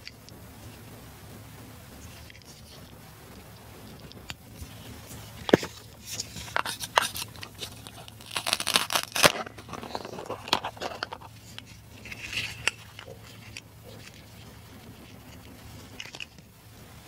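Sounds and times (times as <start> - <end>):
hook-and-loop fastener tearing: 5.5 - 11.3.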